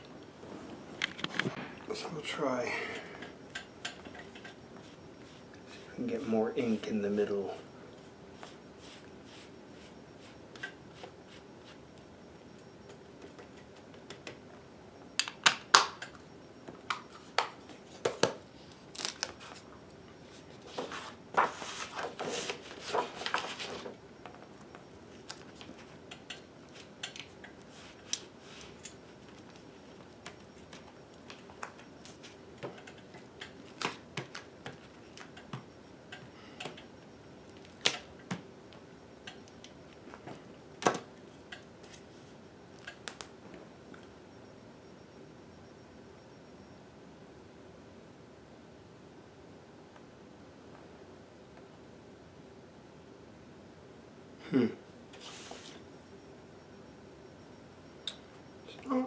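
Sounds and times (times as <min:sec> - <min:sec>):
rustling and scraping: 0:20.3 - 0:24.0, 0:55.2 - 0:55.8.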